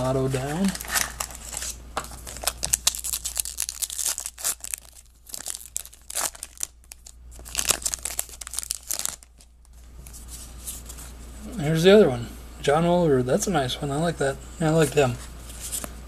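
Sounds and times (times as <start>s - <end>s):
wrapper crackling and rustling: 0.0s - 10.2s.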